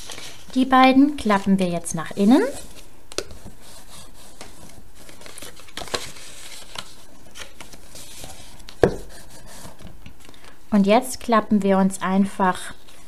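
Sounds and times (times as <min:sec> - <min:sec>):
paper rustling: 0:00.0 - 0:09.9.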